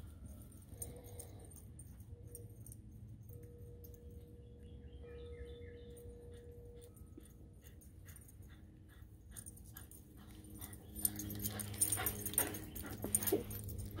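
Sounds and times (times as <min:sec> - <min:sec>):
dog panting: 0:06.3 - 0:14.0.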